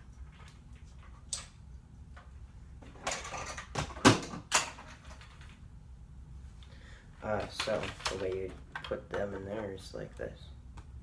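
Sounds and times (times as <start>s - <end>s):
plastic rustling and clattering: 7.3s - 9.6s.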